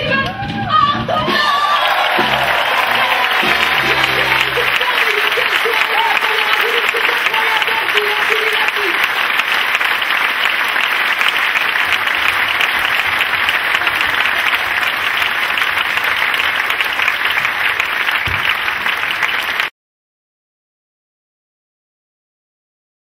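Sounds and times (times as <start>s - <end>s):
audience applauding: 1.3s - 19.7s.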